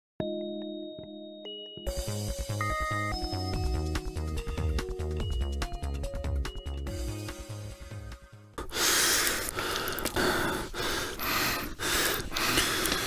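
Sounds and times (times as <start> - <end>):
electronic music: 1.8 - 7.7
hissing gasping breaths: 8.6 - 13.0.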